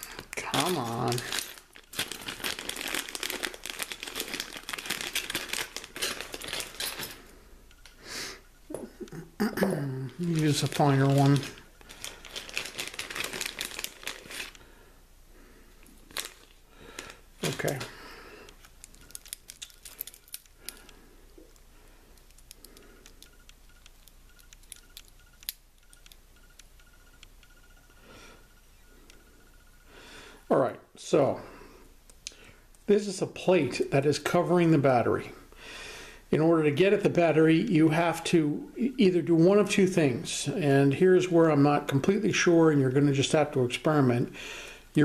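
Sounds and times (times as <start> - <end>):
plastic bag crinkling: 0.0 - 7.4, 10.1 - 14.7, 15.8 - 26.2.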